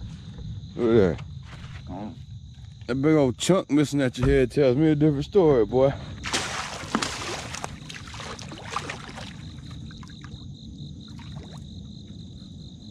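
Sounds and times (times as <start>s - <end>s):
crickets chirping: 0.0s - 12.9s
water splashing and dripping: 6.2s - 10.4s, 11.1s - 11.7s.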